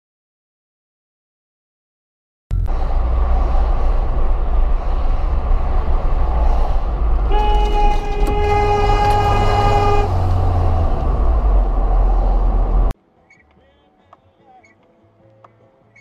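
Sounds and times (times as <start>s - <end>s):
road and engine rumble: 2.5s - 13.0s
vehicle horn: 7.2s - 10.8s.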